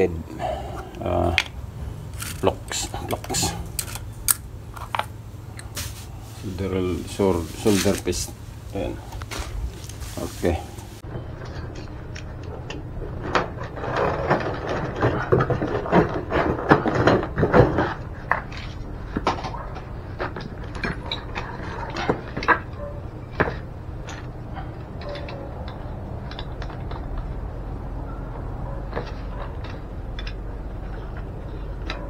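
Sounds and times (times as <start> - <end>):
cardboard box rustling: 5.6 - 10.9.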